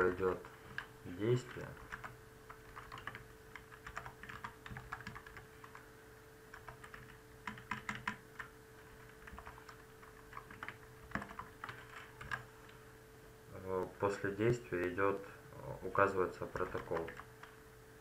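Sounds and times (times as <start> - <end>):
computer keyboard typing: 0.0 - 5.9, 6.5 - 12.5, 16.4 - 17.6
faint steady hum: 0.0 - 18.0.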